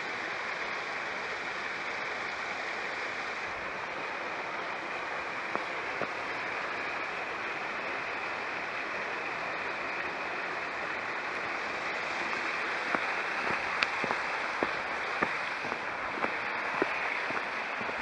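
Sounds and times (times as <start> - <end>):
small waterfall rushing into pool: 0.0 - 18.0
footsteps on path: 12.7 - 18.0.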